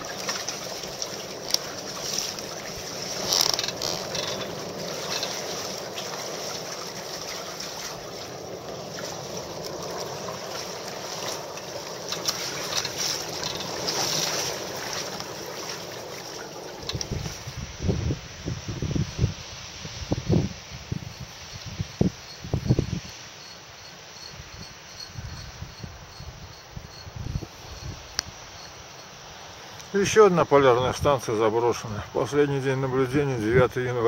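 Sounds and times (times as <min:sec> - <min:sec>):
water splashing along hull: 0:00.0 - 0:18.5.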